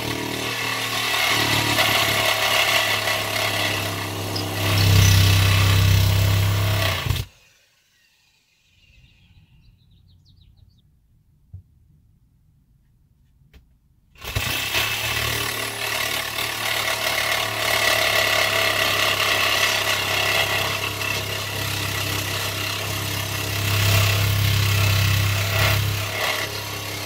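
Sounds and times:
power drill boring into wood: 0.0s - 8.5s, 14.2s - 27.0s.

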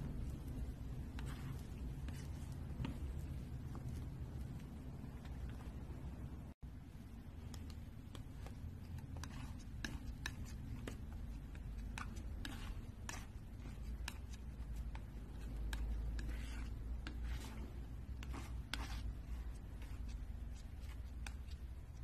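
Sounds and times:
palette knife scraping paint: 0.0s - 3.5s, 7.4s - 22.0s
steady low rumble: 0.0s - 10.0s.

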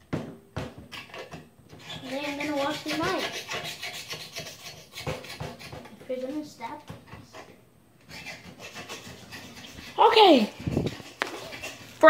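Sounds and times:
fingers scraping microphone: 8.1s - 12.0s.

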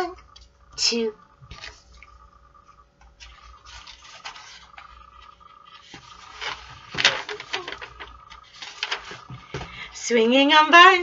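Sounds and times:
book pages rustling and flapping: 3.1s - 9.8s.

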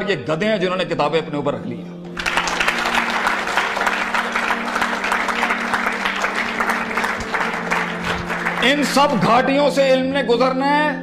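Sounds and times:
audience applauding: 2.1s - 9.9s.

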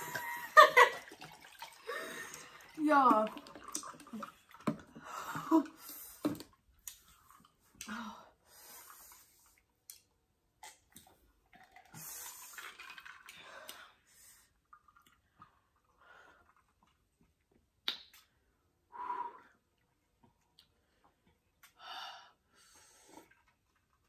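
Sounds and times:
breathing: 1.8s - 2.7s, 7.9s - 9.6s, 13.3s - 14.6s, 16.0s - 16.6s, 18.9s - 19.6s, 21.8s - 23.4s
people sipping a drink: 8.8s - 13.9s, 22.9s - 24.0s.

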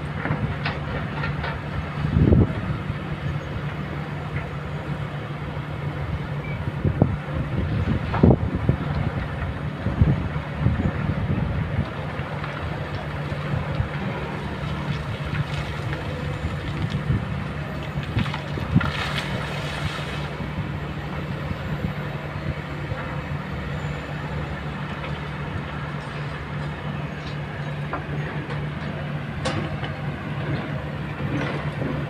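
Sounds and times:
excavator diesel engines running: 0.0s - 32.0s.

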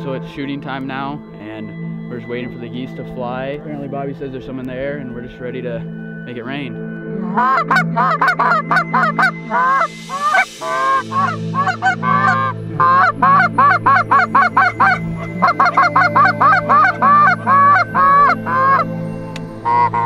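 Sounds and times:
goose call honks and clucks: 7.2s - 18.9s, 19.6s - 20.0s.

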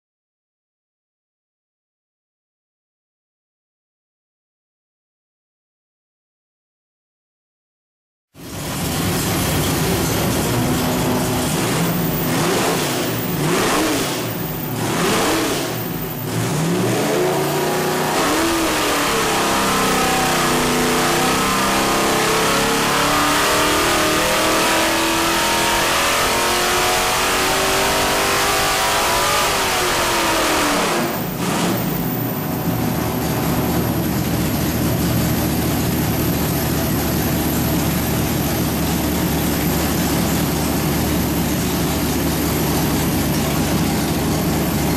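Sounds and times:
car engine revving: 8.4s - 44.9s.

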